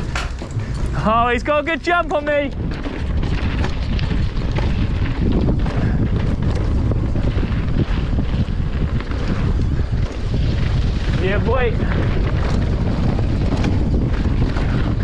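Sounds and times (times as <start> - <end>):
bike rattling over stones: 0.0 - 15.0
wind rushing over microphone: 0.0 - 15.0.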